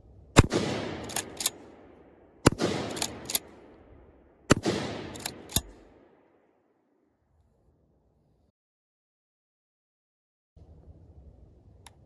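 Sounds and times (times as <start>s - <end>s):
shotgun shots: 0.4s - 6.3s
shotgun pump racking clacks: 1.0s - 1.6s, 2.9s - 3.5s, 5.1s - 5.7s.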